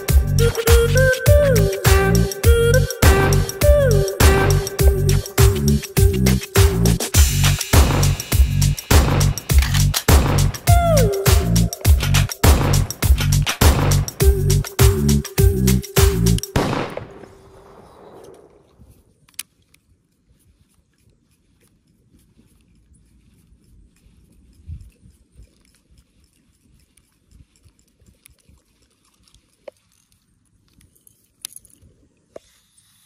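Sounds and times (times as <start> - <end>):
background music: 0.0 - 16.8.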